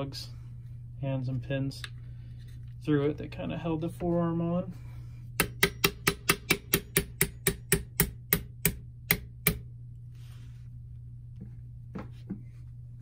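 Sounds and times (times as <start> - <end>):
small hammer tapping a pin: 5.4 - 9.6.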